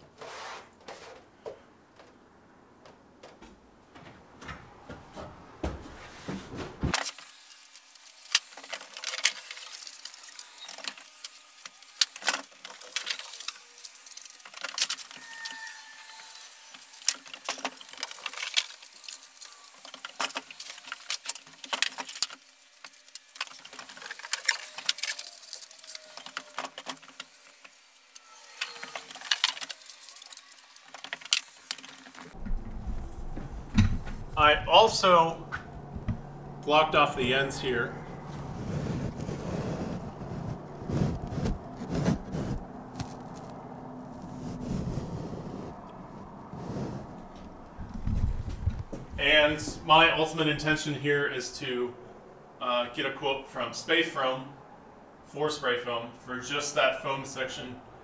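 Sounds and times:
short squeaks: 15.1 - 16.5.

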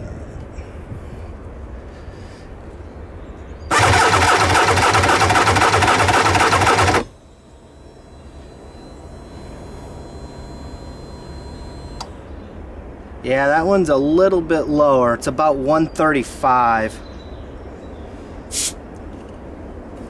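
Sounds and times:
electric starter cranking engine: 3.7 - 12.1.

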